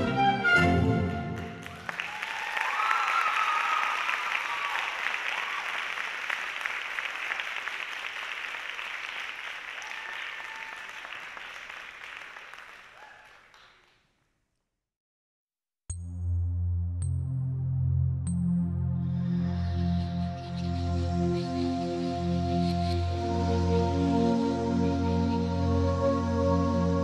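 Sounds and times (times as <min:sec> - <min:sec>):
orchestral ballet music: 0:00.0 - 0:01.8, 0:19.0 - 0:27.0
audience applauding: 0:00.9 - 0:14.0.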